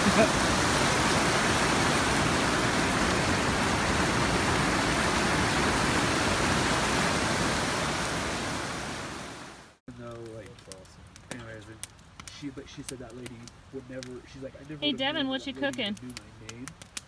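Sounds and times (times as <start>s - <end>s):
water rushing over boulders: 0.0s - 17.0s.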